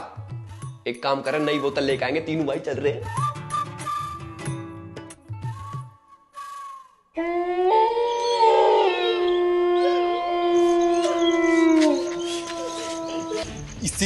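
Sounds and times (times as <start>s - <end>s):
whistled note: 3.0s - 4.3s, 5.4s - 7.1s.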